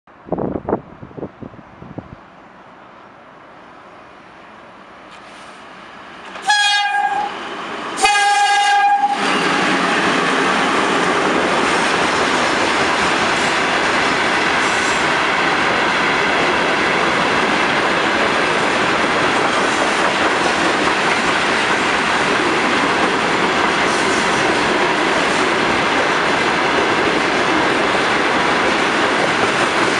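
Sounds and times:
freight train rolling on rails: 0:00.1 - 0:29.9
locomotive horn blasts: 0:06.4 - 0:07.4, 0:08.0 - 0:09.3.

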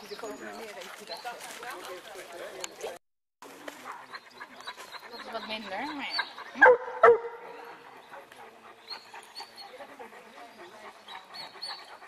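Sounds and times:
dog barking: 0:06.5 - 0:07.8.

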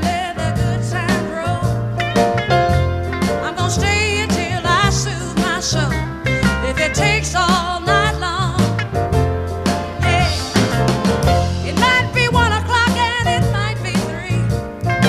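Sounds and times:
bass notes: 0:00.0 - 0:15.0
steady drum beat: 0:00.0 - 0:15.0
wavering sung lead vocal: 0:06.6 - 0:08.6, 0:10.0 - 0:10.7.

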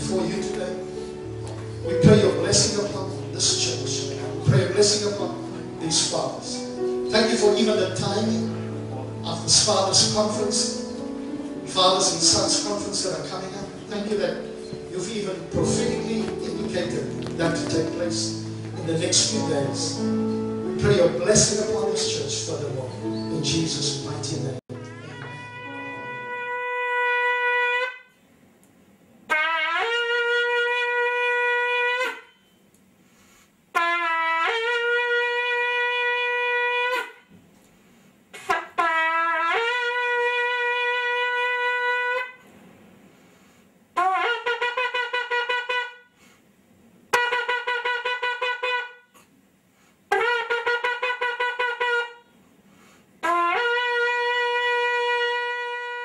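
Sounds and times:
horn long blasts: 0:24.7 - 0:28.2, 0:29.3 - 0:32.5, 0:33.7 - 0:37.3, 0:38.4 - 0:42.4, 0:44.0 - 0:46.2, 0:47.1 - 0:49.2, 0:50.1 - 0:52.3, 0:53.2 - 0:56.0.

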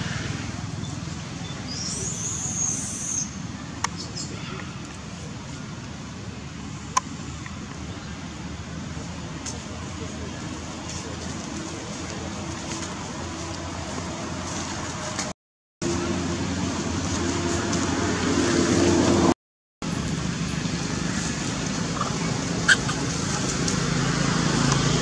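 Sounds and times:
low rumble with hiss: 0:19.8 - 0:25.0.

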